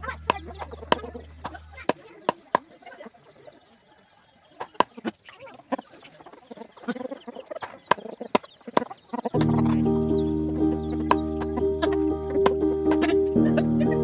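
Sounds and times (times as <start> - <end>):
hens clucking: 0.0 - 14.0
loud music: 9.4 - 14.0.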